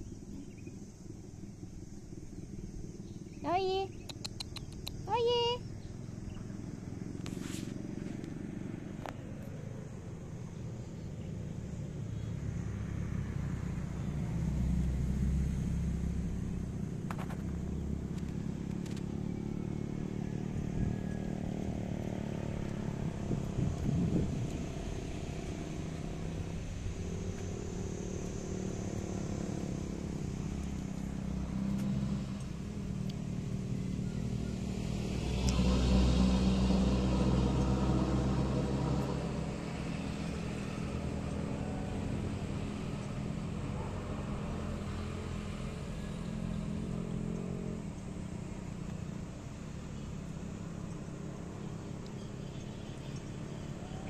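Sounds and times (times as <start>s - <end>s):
low rumble of passing vehicles: 0.0s - 54.0s.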